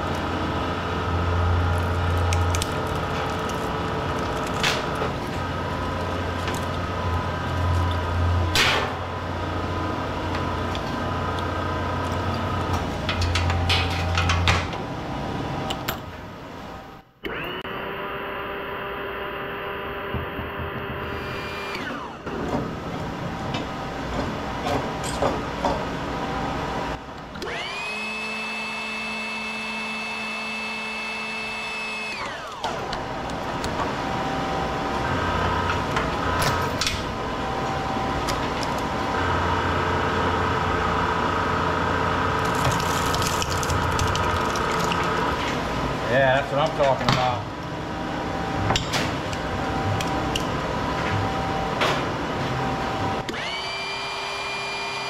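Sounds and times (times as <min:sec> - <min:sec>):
motor spinning up and winding down: 0:17.2 - 0:22.2, 0:27.4 - 0:33.1, 0:53.2 - 0:55.0
machine running: 0:26.9 - 0:46.1.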